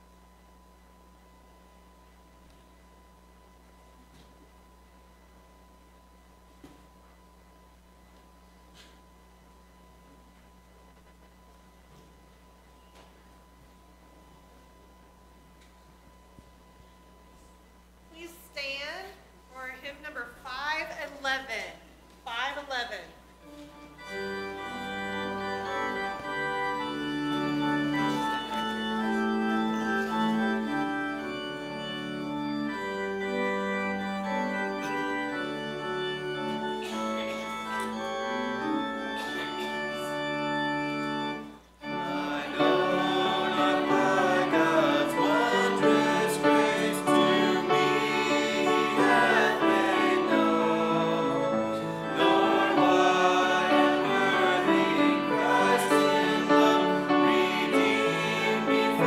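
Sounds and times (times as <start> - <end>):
held instrumental chords: 23.4 - 59.0
small group singing a hymn: 24.1 - 32.4, 41.3 - 59.0.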